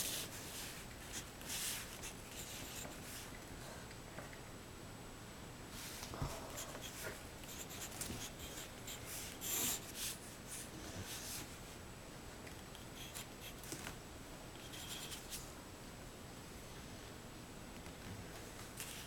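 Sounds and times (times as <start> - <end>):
pencil scratching on paper: 6.6 - 10.2.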